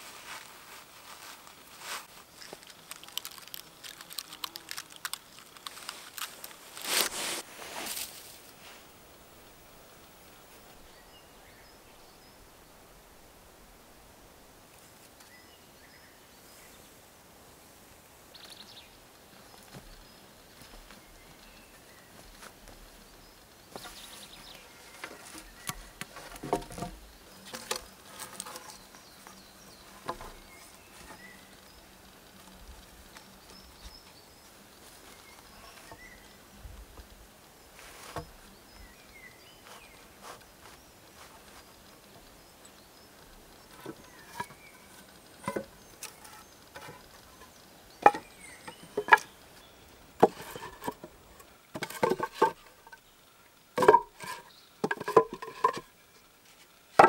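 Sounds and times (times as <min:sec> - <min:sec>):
faint forest background: 0:00.0 - 0:57.0
wooden poles knocking: 0:25.0 - 0:28.7, 0:45.4 - 0:47.0, 0:48.0 - 0:49.3, 0:50.2 - 0:53.0, 0:53.8 - 0:55.9.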